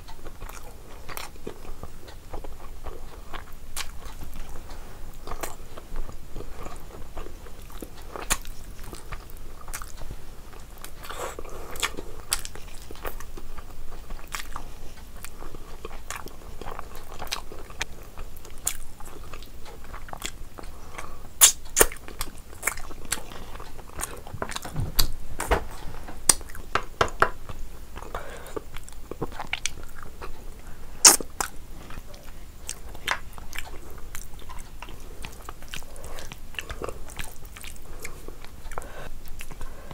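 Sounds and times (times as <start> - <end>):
person chewing food: 0.0 - 39.9.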